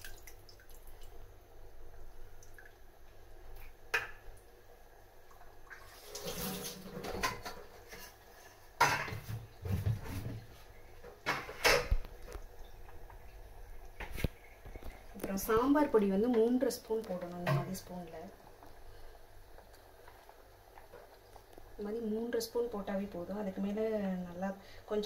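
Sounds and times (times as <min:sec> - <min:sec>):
water splashing into a pot: 0:00.0 - 0:01.2, 0:05.3 - 0:08.0
metal pots clanking: 0:08.8 - 0:10.2.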